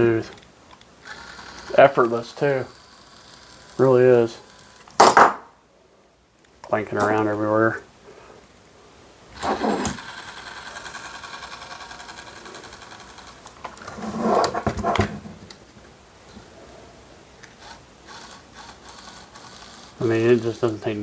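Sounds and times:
servo motor whirring: 1.0 - 4.9, 9.4 - 14.6, 17.5 - 20.7.

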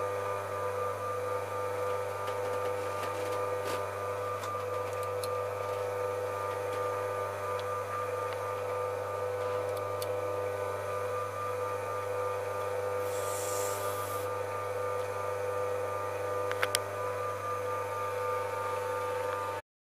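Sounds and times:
short hiss: 13.0 - 14.3
electric motor humming: 13.0 - 14.4.

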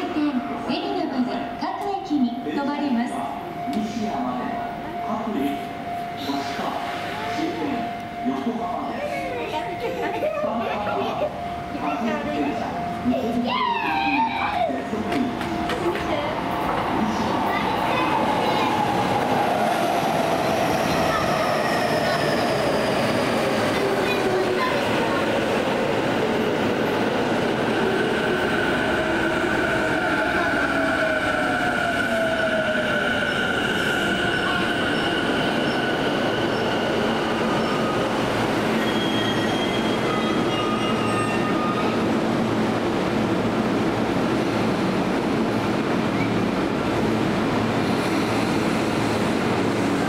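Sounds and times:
train wheels rumbling on rail: 12.6 - 50.0
high wheel squeals: 34.0 - 42.0.

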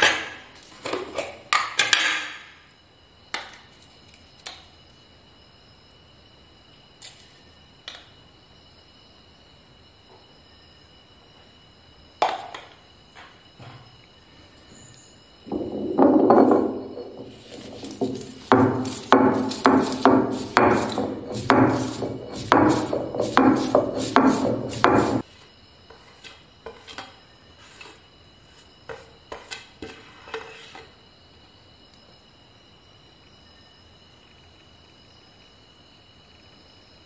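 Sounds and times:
stone roller grinding on stone: 15.5 - 25.2.

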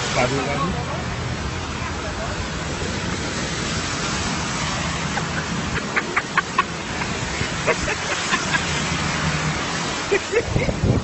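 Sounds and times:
water spray from car in floodwater: 0.0 - 11.0.

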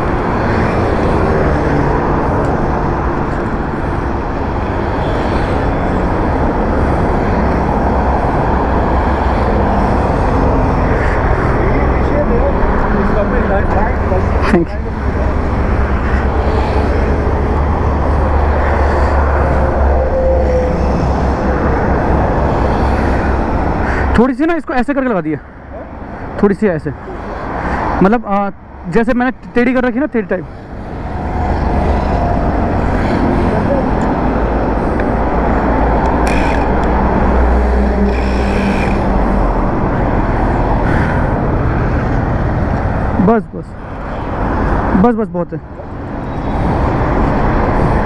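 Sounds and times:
road traffic passing: 0.0 - 48.0
wind on microphone: 45.9 - 48.0.

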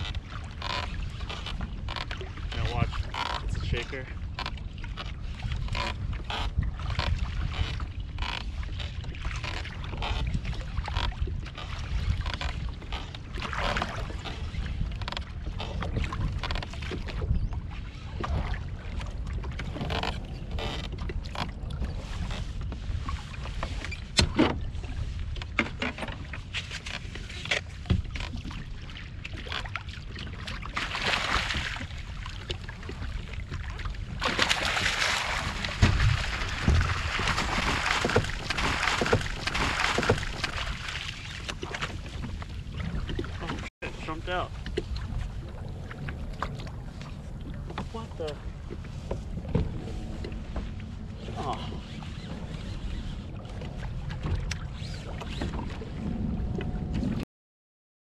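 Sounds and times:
water splashing against kayak hull: 0.0 - 57.2
wind rumbling on microphone: 0.0 - 57.2
fish thrashing at surface: 34.2 - 41.2.

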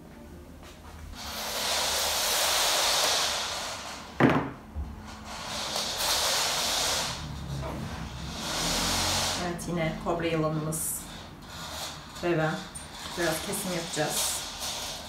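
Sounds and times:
wire scraping over wooden table: 1.2 - 15.0
sharp knock: 4.2 - 4.6.

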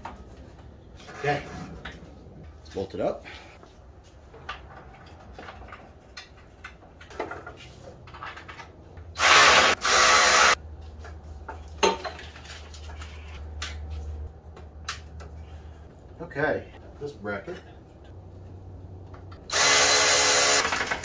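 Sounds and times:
cordless power driver running: 9.2 - 10.6, 19.5 - 20.8.

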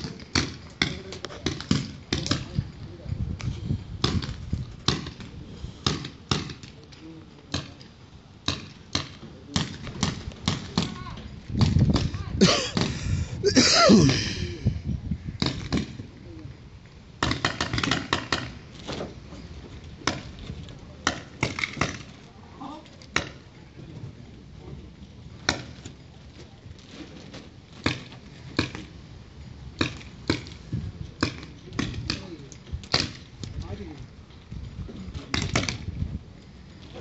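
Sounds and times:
person shouting: 13.4 - 14.6.

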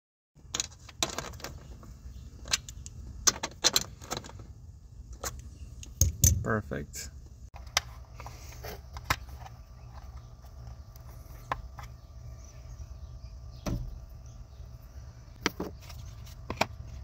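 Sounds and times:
plastic parts clicking and knocking: 0.4 - 4.5
steady low hum: 1.4 - 17.0.

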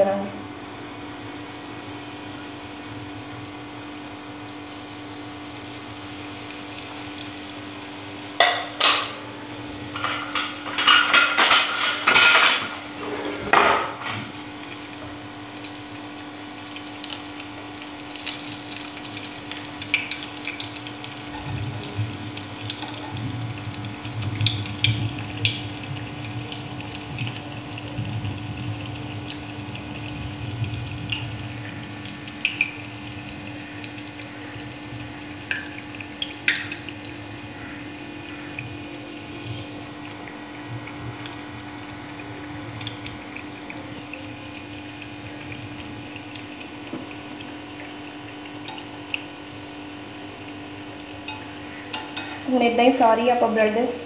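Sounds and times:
bread frying in hot oil: 0.0 - 54.0
steady low hum: 0.0 - 54.0
metal tongs clattering on pan: 10.0 - 12.7.

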